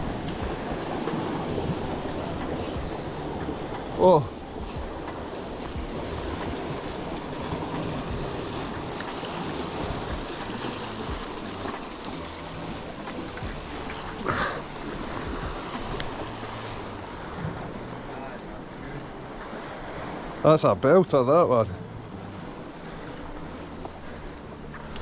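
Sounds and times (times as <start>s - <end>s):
wind on microphone: 0.0s - 18.0s
surf washing against rocks: 0.0s - 25.0s.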